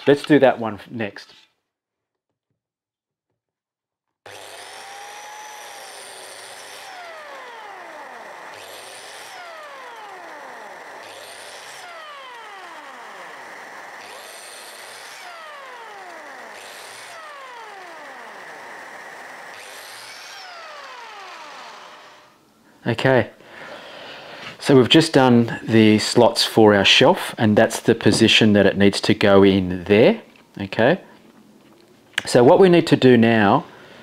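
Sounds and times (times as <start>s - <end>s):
biscuit jointer whining: 4.2s - 22.5s.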